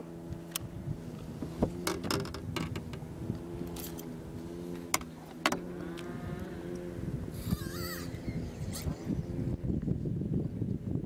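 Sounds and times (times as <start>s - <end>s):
boat motor humming: 0.0s - 11.0s
bird calling: 7.3s - 9.2s.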